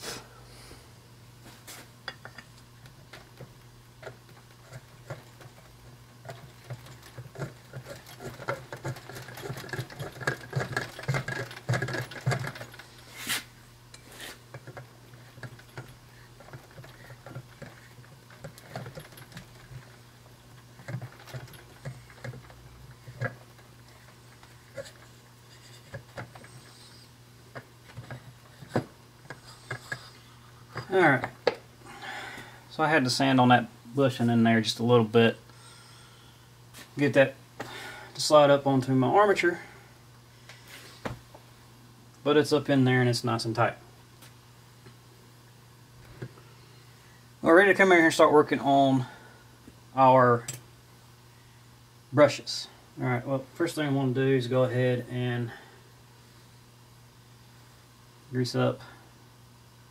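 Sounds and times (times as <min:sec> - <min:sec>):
low steady hum: 0:00.0 - 0:59.9
metal parts clicking and tapping: 0:02.1 - 0:13.0, 0:13.9 - 0:26.8
metal rattling and scraping: 0:02.1 - 0:31.4.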